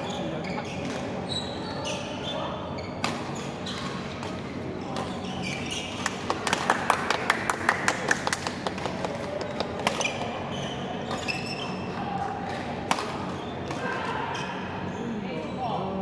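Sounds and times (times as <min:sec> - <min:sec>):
shoe squeaks on court: 0:00.0 - 0:04.2, 0:04.8 - 0:06.1, 0:09.8 - 0:11.9
racket hitting shuttlecock: 0:12.5 - 0:14.0.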